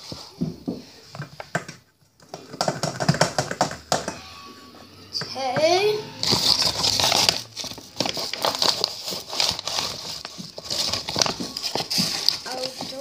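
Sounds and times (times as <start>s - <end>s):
plastic bag crinkling: 6.2s - 13.0s.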